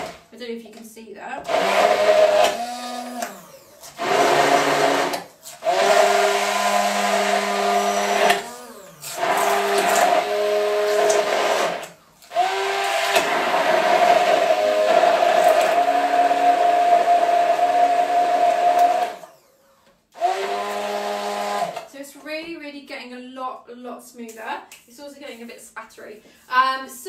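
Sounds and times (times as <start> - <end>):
blender motor whining: 1.4 - 21.9.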